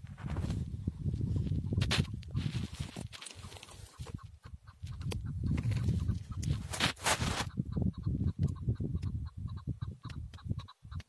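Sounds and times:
partridge clucking calls: 3.2s - 6.6s, 7.5s - 11.0s.

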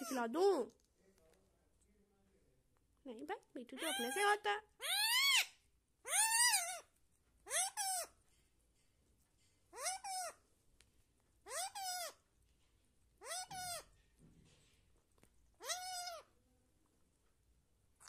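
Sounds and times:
parrot calling: 3.8s - 8.2s, 9.7s - 10.4s, 11.4s - 12.2s, 13.2s - 14.0s, 15.6s - 16.4s.

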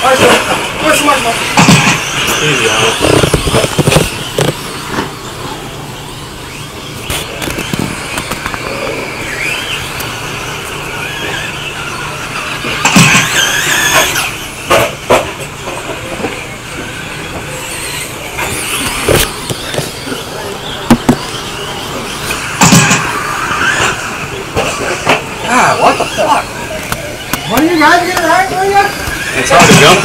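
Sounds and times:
rc truck motor whine: 0.0s - 30.0s
sharp knocks: 1.5s - 2.4s, 20.9s - 21.3s, 22.6s - 23.2s.

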